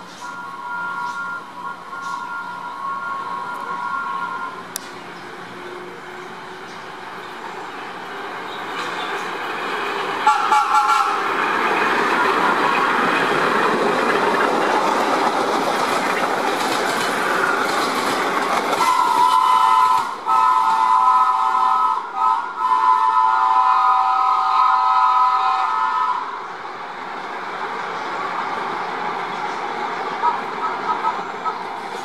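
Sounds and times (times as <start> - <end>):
subway horn blasts: 0.0 - 4.8, 10.1 - 12.9, 18.8 - 26.5, 30.1 - 31.6
subway train wheels rumbling: 0.0 - 32.0.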